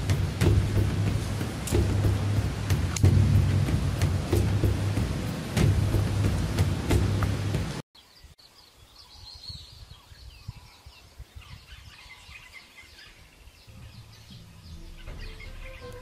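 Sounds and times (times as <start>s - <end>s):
low rumble: 0.0s - 7.8s
small birds chirping: 0.0s - 16.0s.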